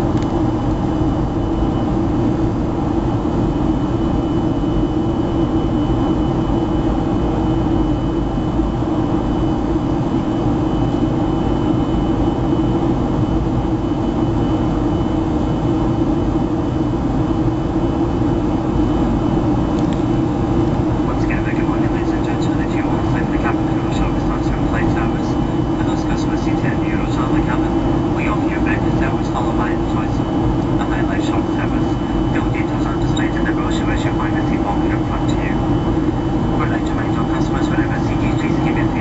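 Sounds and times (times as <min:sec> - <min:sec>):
jet engine drone: 0:00.0 - 0:39.0
thin high whine: 0:18.9 - 0:39.0.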